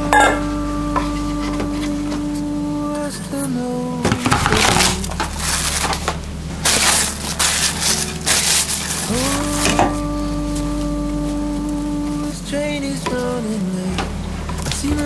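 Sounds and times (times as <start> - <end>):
background music: 0.0 - 15.0
cling film crinkling: 4.2 - 9.8.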